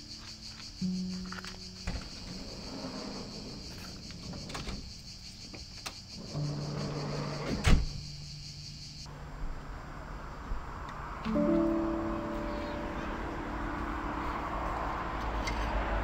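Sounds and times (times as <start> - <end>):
van door slamming: 1.8 - 2.5, 7.4 - 8.1.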